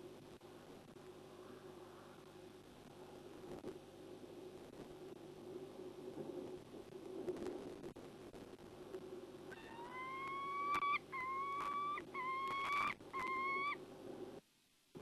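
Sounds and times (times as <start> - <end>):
falcon wailing calls: 9.5 - 13.8.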